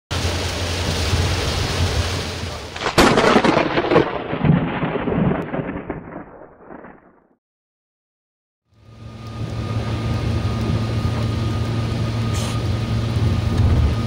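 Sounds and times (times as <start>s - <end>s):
heavy rain hissing: 0.1s - 3.2s, 8.9s - 14.0s
thunderclap and rumbling thunder: 2.8s - 7.3s, 12.7s - 14.0s.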